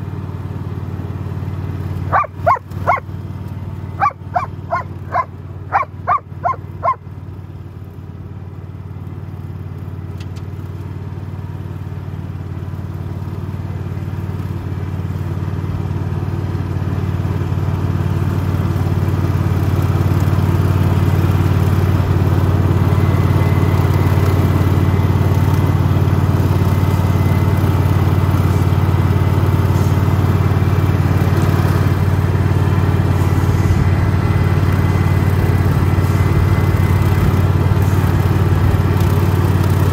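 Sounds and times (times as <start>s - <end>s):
lawn mower engine running: 0.0s - 39.9s
dog barking: 2.1s - 3.0s, 4.0s - 7.0s.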